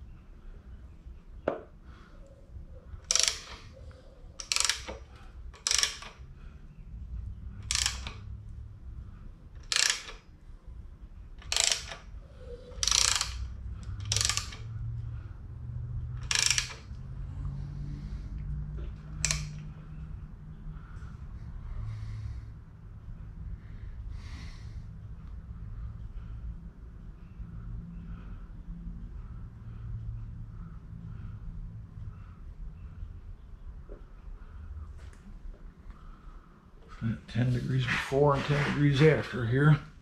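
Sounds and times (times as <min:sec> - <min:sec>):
low steady hum: 0:00.0 - 0:40.0
ratchet wrench clicking: 0:03.0 - 0:03.7, 0:04.4 - 0:06.2, 0:07.6 - 0:08.3, 0:09.6 - 0:10.3, 0:11.4 - 0:12.1, 0:12.8 - 0:14.8, 0:16.2 - 0:17.0, 0:19.1 - 0:19.7.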